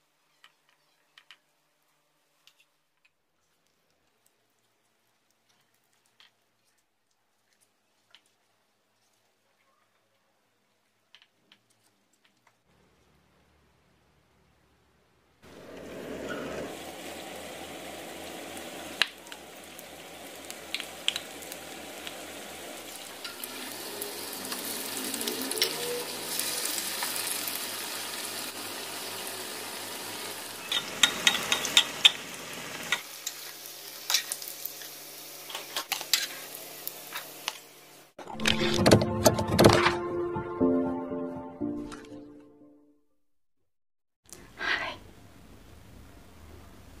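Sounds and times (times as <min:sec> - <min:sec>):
oil sizzling: 0:15.4 - 0:38.7
sharp pops of frying oil: 0:20.6 - 0:22.2, 0:30.7 - 0:32.2.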